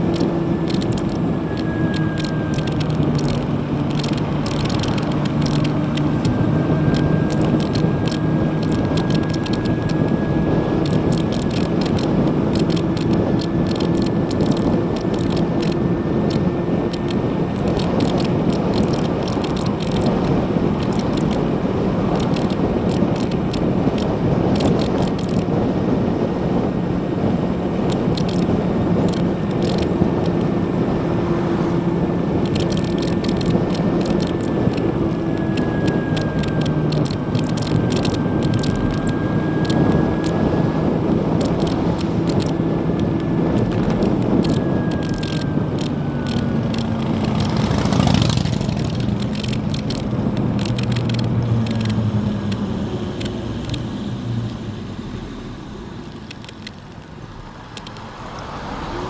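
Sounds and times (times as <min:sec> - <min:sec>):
small rattling ticks: 0:00.0 - 0:10.2, 0:10.8 - 0:21.4, 0:22.2 - 0:25.5, 0:27.9 - 0:30.5, 0:32.4 - 0:40.4, 0:41.4 - 0:52.0, 0:56.1 - 0:57.1, 0:57.7 - 0:58.0
wind and tyre noise: 0:00.0 - 0:59.0.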